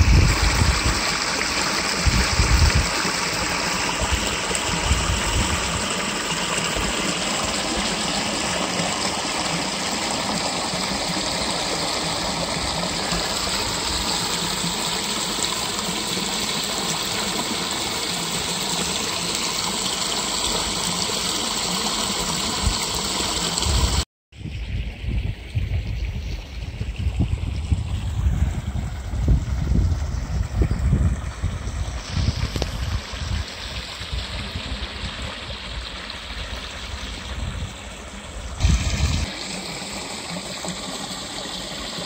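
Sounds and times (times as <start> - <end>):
wind buffeting microphone: 0.0 - 3.1, 4.0 - 6.1, 23.6 - 39.3
water rushing over weir: 0.0 - 24.0, 26.1 - 42.0.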